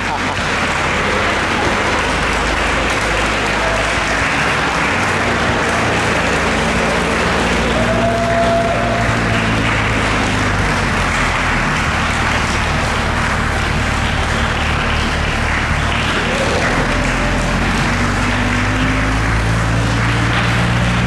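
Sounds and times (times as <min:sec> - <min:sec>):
car engine running low: 0:00.0 - 0:21.0
crowd applauding: 0:00.0 - 0:21.0.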